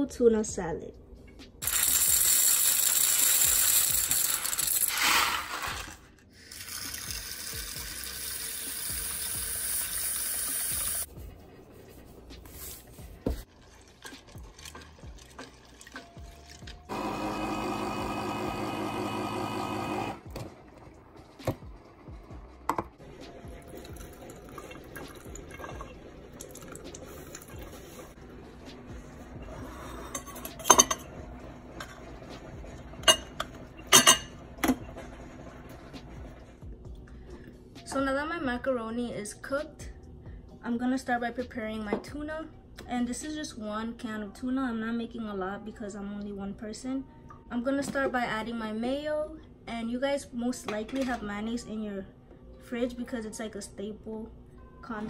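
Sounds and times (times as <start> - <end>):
quiet kitchen sounds: 0.0 - 38.1, 41.7 - 55.0
pasta rattling into metal pan: 1.6 - 6.1.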